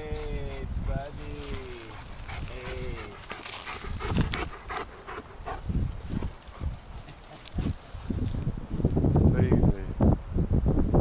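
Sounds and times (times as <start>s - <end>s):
dog panting: 0.0s - 7.8s.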